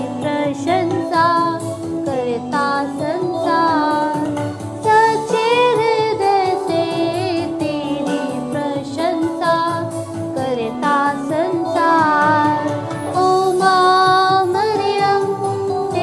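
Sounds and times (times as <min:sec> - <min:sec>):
woman singing devotional song: 0:00.0 - 0:16.0.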